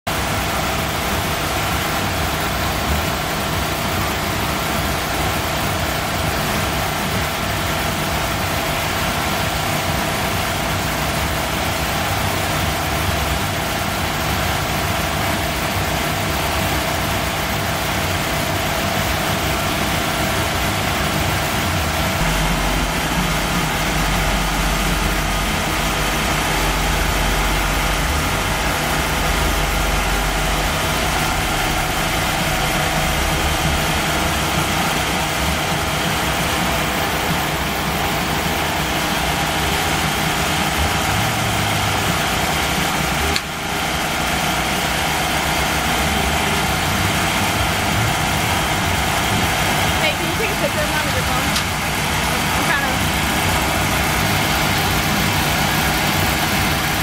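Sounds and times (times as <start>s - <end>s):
car engine idling: 0.1s - 57.0s
deep low rumble: 18.4s - 41.1s.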